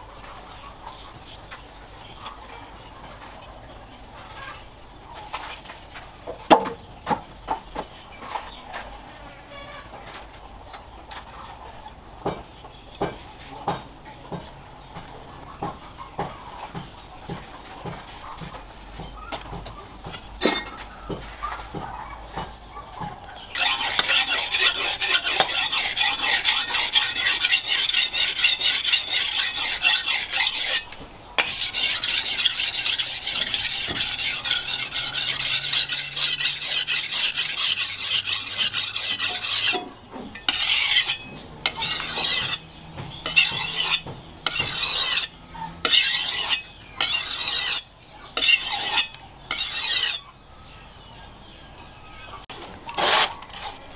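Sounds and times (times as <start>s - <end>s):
blade scraping on whetstone: 23.6s - 50.4s, 51.7s - 53.9s.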